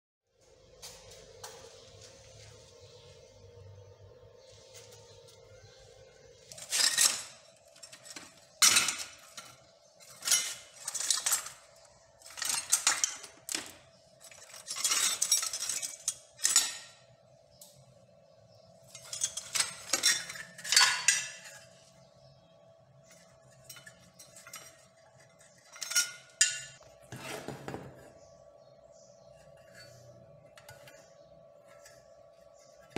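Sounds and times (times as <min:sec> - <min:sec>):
scrap metal clanking and rattling: 0:06.4 - 0:17.2, 0:18.8 - 0:22.1, 0:23.0 - 0:28.0.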